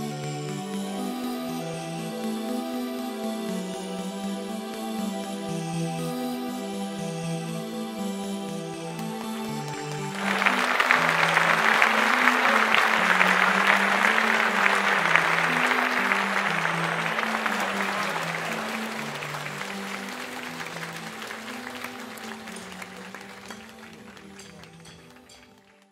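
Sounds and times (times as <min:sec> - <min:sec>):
audience applause: 0:09.8 - 0:25.9.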